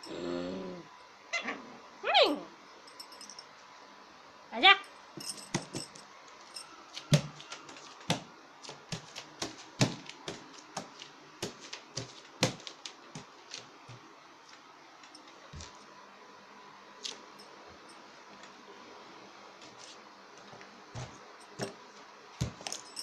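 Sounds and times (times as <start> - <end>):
puppy claws tapping on marble floor: 6.6 - 13.7.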